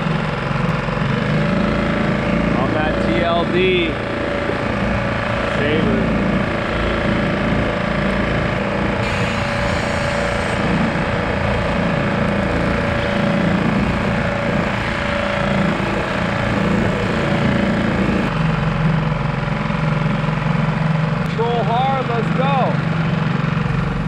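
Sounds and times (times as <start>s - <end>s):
small outboard motor running: 0.0s - 24.0s
water rushing along a hull: 2.6s - 18.3s.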